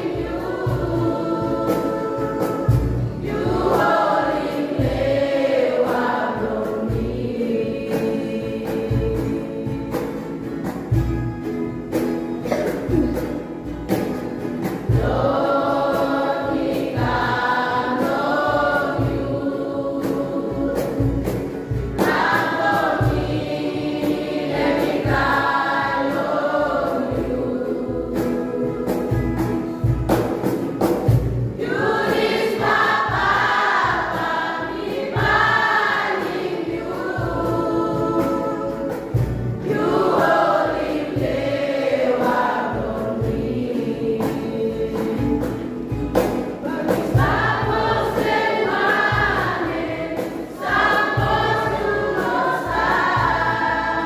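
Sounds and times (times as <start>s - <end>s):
children's choir singing: 0.0s - 54.0s.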